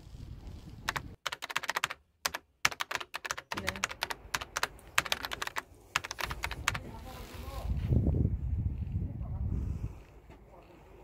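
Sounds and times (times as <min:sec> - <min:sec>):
typing on computer keyboard: 0:00.9 - 0:06.8.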